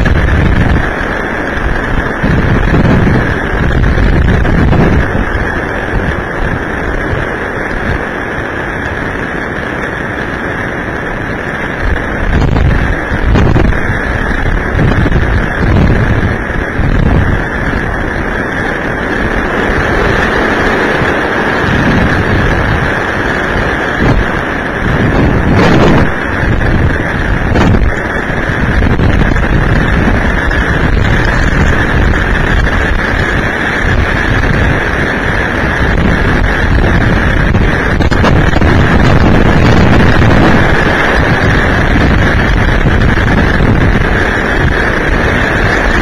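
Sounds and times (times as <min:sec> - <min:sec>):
steady high whine: 0:00.0 - 0:46.0
storm wind buffeting microphone: 0:00.0 - 0:46.0.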